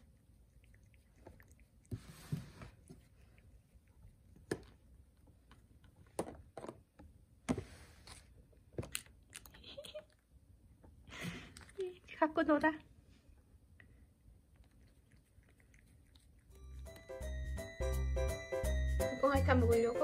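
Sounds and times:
cat licking plastic dish: 0.0s - 5.8s, 14.5s - 16.5s.

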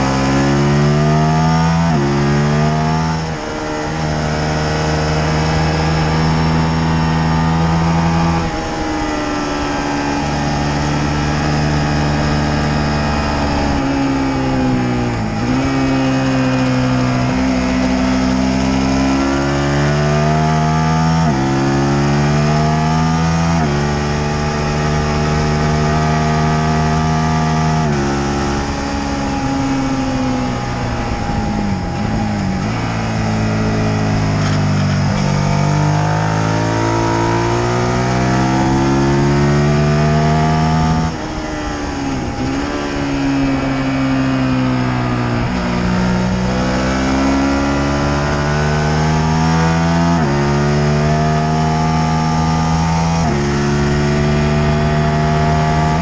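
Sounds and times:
motorcycle engine revving: 0.0s - 56.0s
wind rush over microphone: 26.8s - 36.7s, 40.1s - 47.0s.

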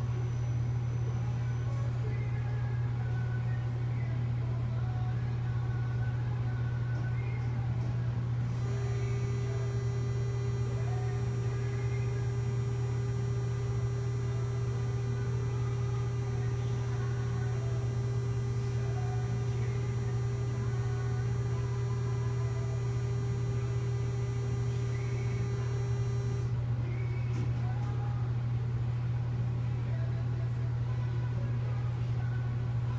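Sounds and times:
machine low hum: 0.0s - 32.9s
thin high whine: 8.5s - 26.6s
steady higher tone: 8.6s - 26.5s.

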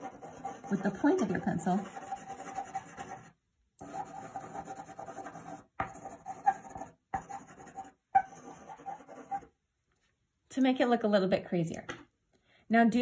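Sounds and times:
colored pencil scratching on paper: 0.0s - 9.5s.

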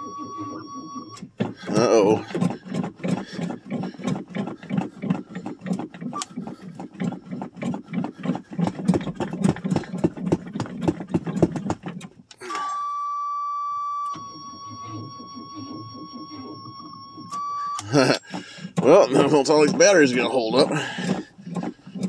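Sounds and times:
engine starter cranking: 1.1s - 12.8s, 15.2s - 22.0s
dash warning buzzer: 12.6s - 20.4s.

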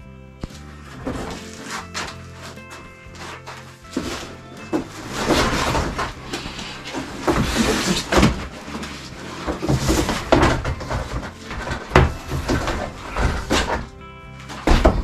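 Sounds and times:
cable scraping against insulation: 0.8s - 15.0s
sharp knocks: 9.4s - 13.9s, 14.5s - 15.0s.

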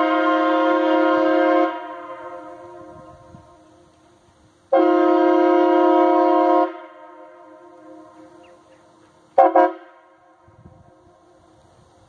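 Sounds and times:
horn echo: 0.0s - 3.8s, 4.7s - 8.5s, 9.4s - 11.0s
train horn blasts: 0.0s - 4.0s, 4.7s - 8.7s, 9.3s - 11.4s.

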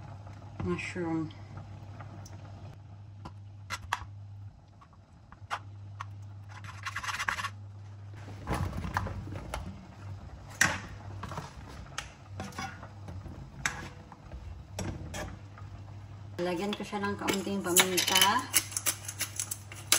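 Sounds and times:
spatula scraping in a wok: 12.4s - 13.0s.

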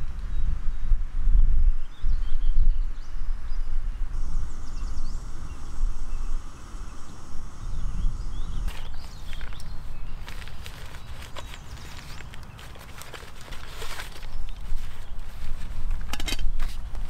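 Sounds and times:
wind rumbling on microphone: 0.0s - 17.0s
small bird chirping: 1.8s - 15.8s
crackling of leaf litter: 8.3s - 17.0s.

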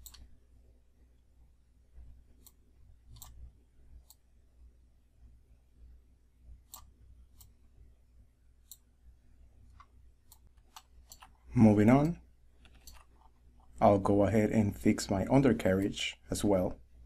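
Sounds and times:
faint computer mouse clicks: 0.0s - 0.3s, 2.4s - 3.4s, 9.8s - 11.4s, 12.0s - 13.1s
low steady room hum: 0.0s - 17.0s.

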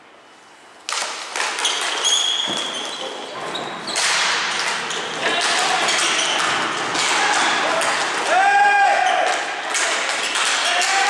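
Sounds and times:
hockey sticks and ball clacking: 0.8s - 11.0s
high squeaks: 1.6s - 6.8s.

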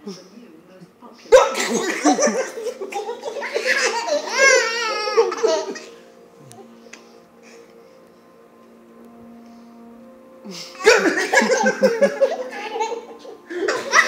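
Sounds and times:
toddler laughing: 1.4s - 6.0s, 10.8s - 14.0s
toddler squealing: 3.6s - 5.8s.

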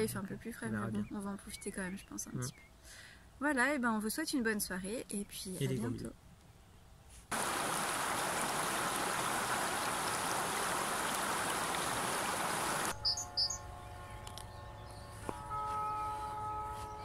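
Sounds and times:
river water rushing over weir: 7.3s - 12.9s
bird chirps: 12.9s - 15.2s.

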